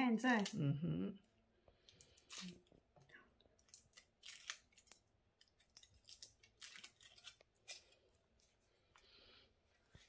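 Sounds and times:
wrapper crinkling and tearing: 1.9 - 2.9, 3.6 - 8.2.

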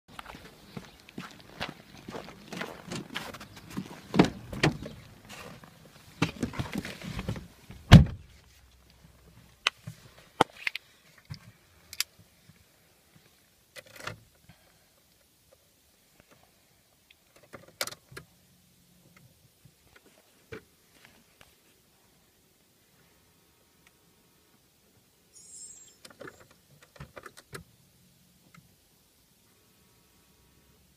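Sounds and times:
car door opening: 4.1 - 5.0
car door slamming shut: 7.9 - 8.2.

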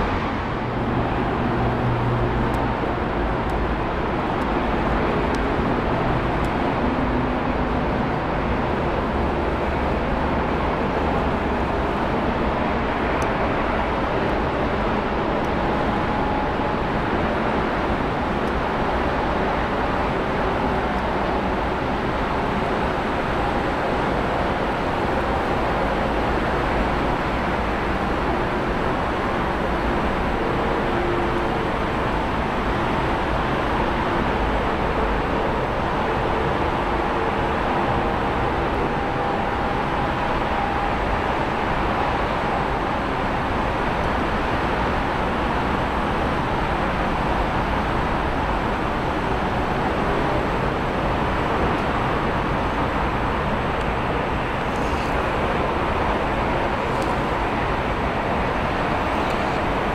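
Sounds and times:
faint engine whine: 0.0 - 59.9
jet engines roaring: 24.6 - 59.9.

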